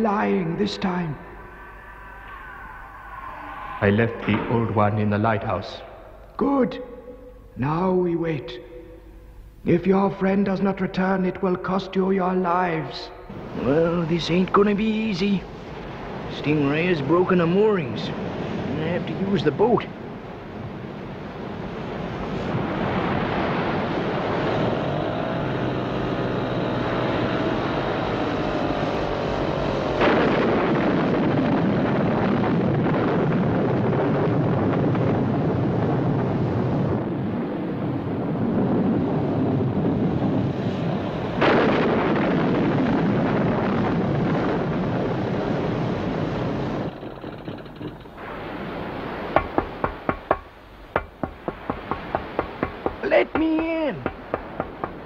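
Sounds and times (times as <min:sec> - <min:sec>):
rough waves: 0:00.0 - 0:07.5, 0:13.3 - 0:55.0
wind: 0:00.0 - 0:55.0
water surges: 0:13.3 - 0:55.0.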